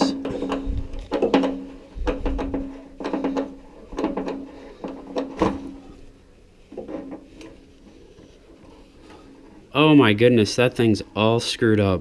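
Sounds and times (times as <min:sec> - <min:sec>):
metal knocks and clicks: 0:00.0 - 0:05.9.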